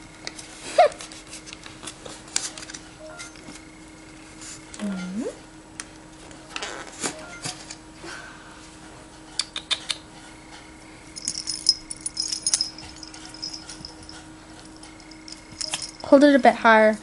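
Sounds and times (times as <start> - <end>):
collar bell jingling: 11.1 - 16.4.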